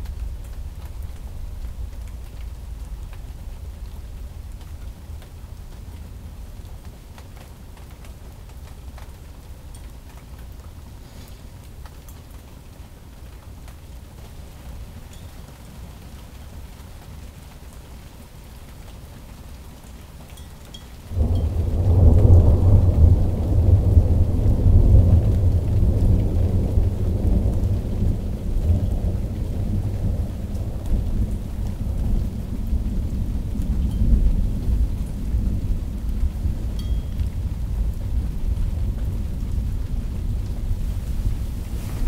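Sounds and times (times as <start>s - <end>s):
thunder crack and rumble: 21.1s - 42.0s.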